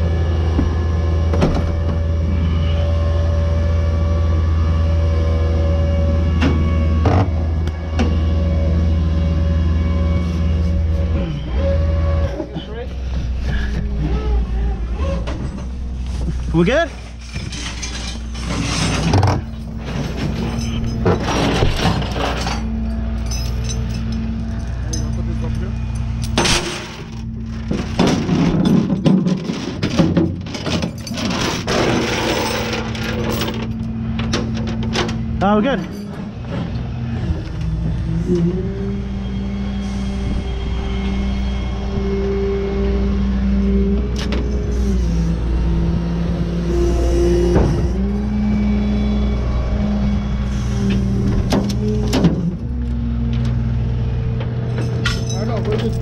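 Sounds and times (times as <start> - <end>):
chains rattling on steel deck: 17.0 - 33.9, 54.7 - 56.0.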